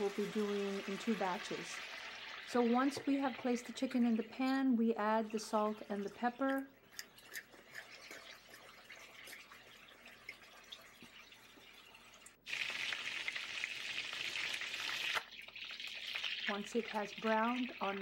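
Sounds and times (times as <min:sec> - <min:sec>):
chicken sizzling in a frying pan: 0:00.0 - 0:03.4, 0:12.4 - 0:18.0.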